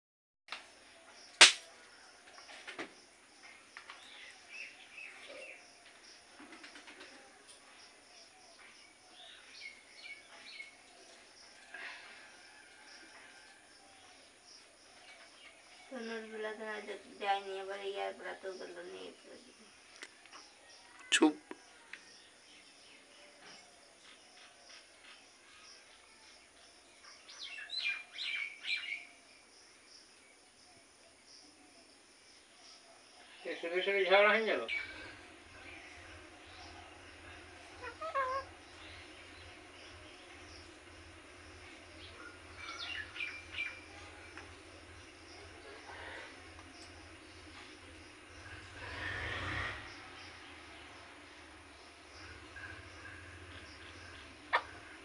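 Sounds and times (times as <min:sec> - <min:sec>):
faint high chirping: 0:00.8 - 0:33.9, 0:34.7 - 0:55.0
parakeet chirping faintly: 0:34.7 - 0:55.0
parakeet harsh calls: 0:37.8 - 0:38.5.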